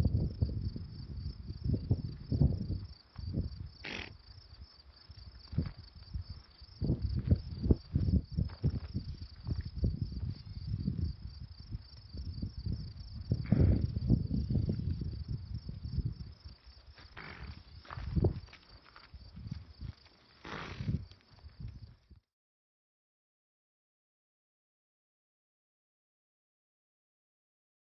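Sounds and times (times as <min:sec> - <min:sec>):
insects chirping: 0:00.0 - 0:22.2
low thumps and rustles: 0:06.9 - 0:10.5.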